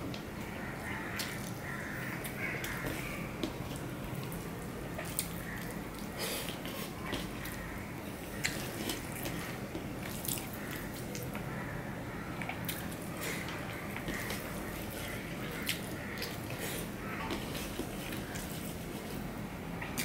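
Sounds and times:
chewing with wet mouth clicks: 8.3s - 11.5s, 12.4s - 18.6s.

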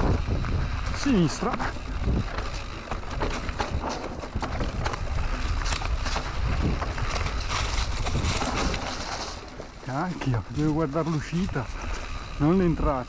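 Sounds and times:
bike clattering over bumps: 0.0s - 13.0s
bike tyres rolling over dirt: 0.0s - 13.0s.

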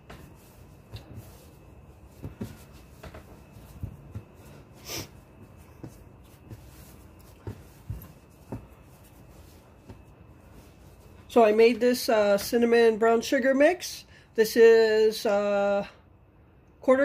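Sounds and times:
hands kneading dough: 0.0s - 12.8s.

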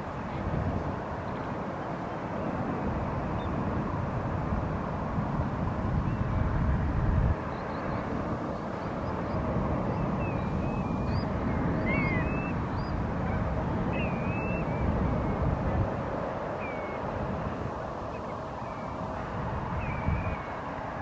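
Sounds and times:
jet airliner rumble: 0.0s - 21.0s
small birds chirping: 7.4s - 13.0s, 13.9s - 15.4s.

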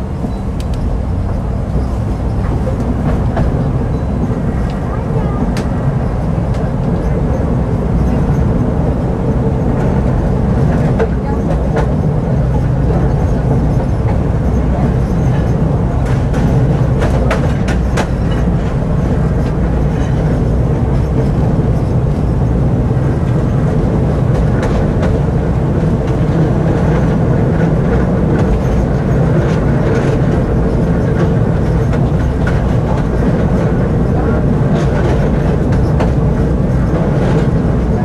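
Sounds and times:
tram wheels rumbling on rails: 0.0s - 38.0s
wheels clicking over rail joints: 9.6s - 38.0s.

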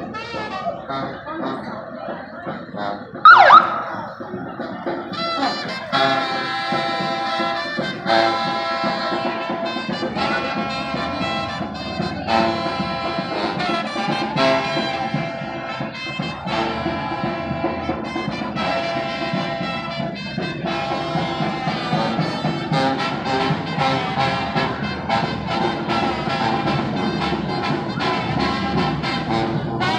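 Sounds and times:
sousaphone bass line: 3.3s - 4.6s
horns playing: 3.3s - 29.9s.

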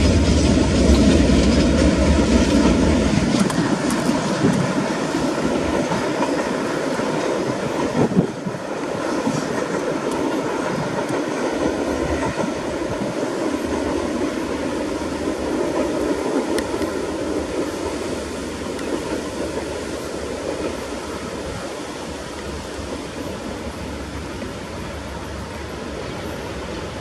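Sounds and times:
freight train rumbling on rails: 0.0s - 27.0s.

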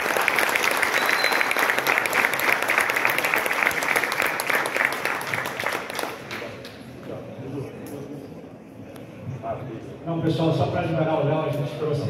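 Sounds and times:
people applauding: 0.0s - 6.8s.

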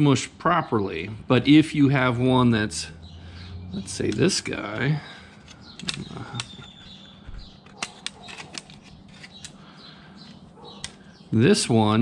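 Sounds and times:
light clicks of rivets handled: 4.8s - 6.9s, 7.6s - 9.6s.

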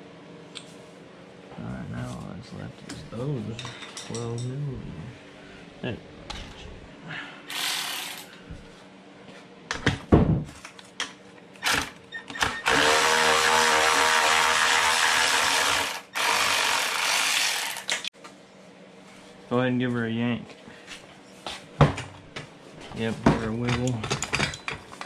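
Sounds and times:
electric ratchet running: 7.5s - 8.3s, 12.6s - 18.1s
metal tools clinking: 23.5s - 25.0s.

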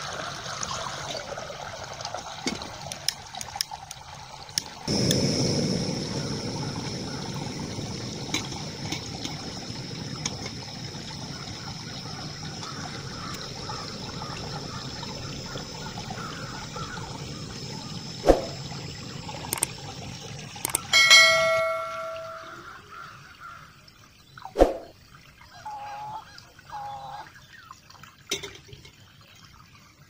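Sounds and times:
water trickling into stream: 0.0s - 30.0s
gas stove hissing: 4.6s - 22.4s
ringing metal clang: 20.9s - 22.7s.

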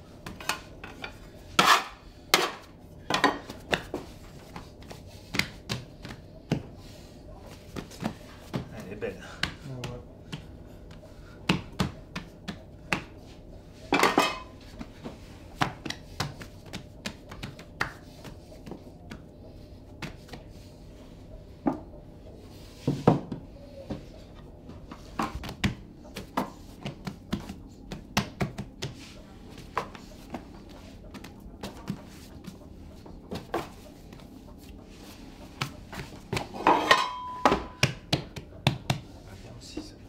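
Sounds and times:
hands slapping bread dough: 3.3s - 13.4s, 14.6s - 20.7s, 24.7s - 36.6s, 37.5s - 39.4s.

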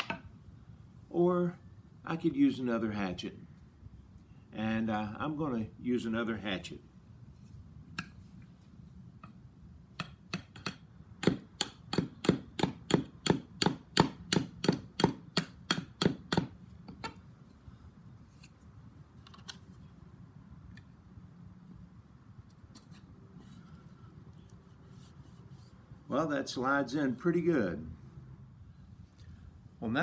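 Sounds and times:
hatchet knocking on wood: 10.0s - 17.1s.

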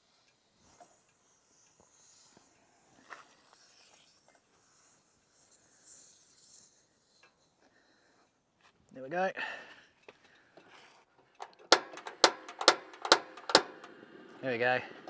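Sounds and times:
faint clicks and knocks: 10.0s - 14.0s.

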